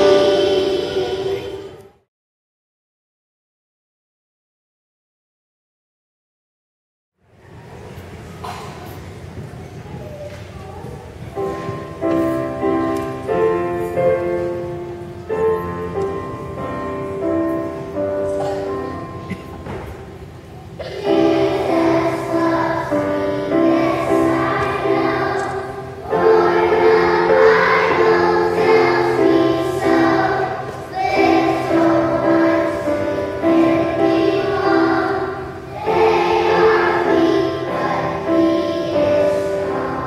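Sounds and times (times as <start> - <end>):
children's choir singing: 0.0 - 2.1, 11.4 - 40.0.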